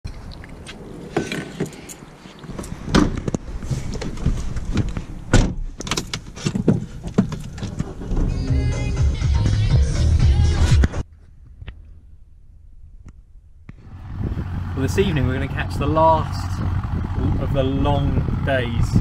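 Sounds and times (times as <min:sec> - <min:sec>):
person climbing into car seat: 0:01.1 - 0:08.7
low rumble: 0:12.0 - 0:19.0.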